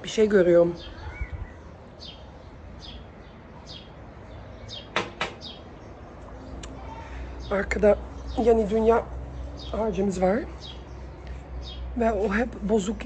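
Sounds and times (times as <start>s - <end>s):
bird chirping: 0.4s - 13.0s
sharp knocks: 4.9s - 5.5s.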